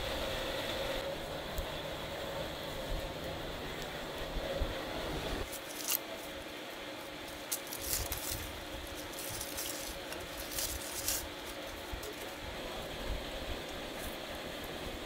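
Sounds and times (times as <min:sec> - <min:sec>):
aluminium foil crinkling and tearing: 0:05.4 - 0:12.4.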